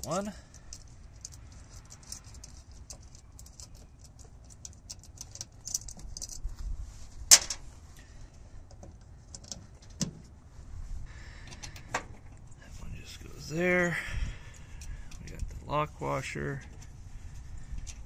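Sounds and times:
small metal clicks and scrapes: 0.0 - 6.6, 8.6 - 10.1, 16.5 - 18.0.

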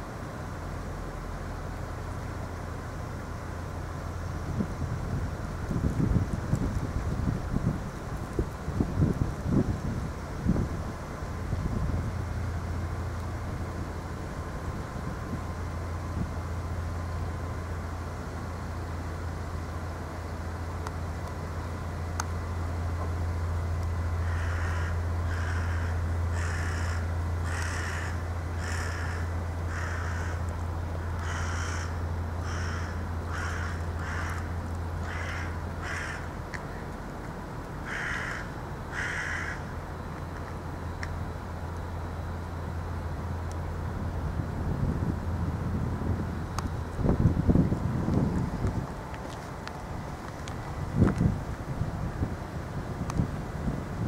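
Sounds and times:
steady low hum: 0.0 - 54.0
crow cawing: 24.2 - 30.4, 31.2 - 36.3, 37.8 - 39.7.

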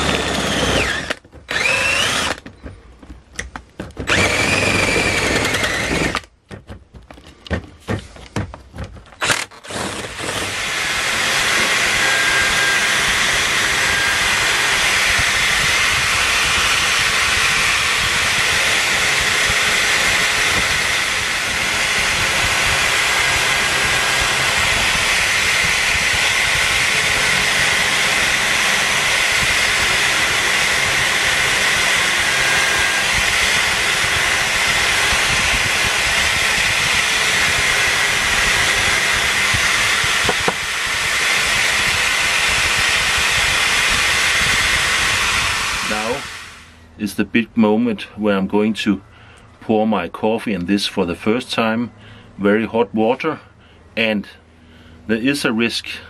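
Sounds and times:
drill press sanding whir: 0.0 - 2.5, 4.0 - 6.3, 9.2 - 46.8.

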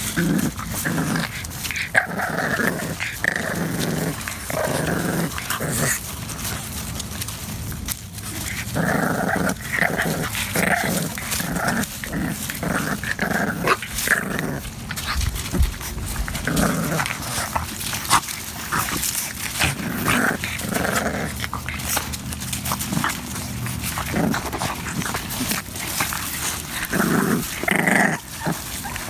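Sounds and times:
paws scuffling on gravel: 0.0 - 29.0
puppies play-growling: 0.0 - 29.0.

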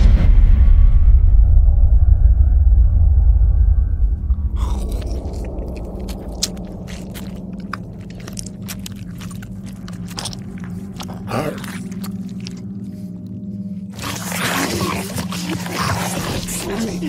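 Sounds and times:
low drone: 0.0 - 17.0
clicks and crunches: 4.5 - 17.0.

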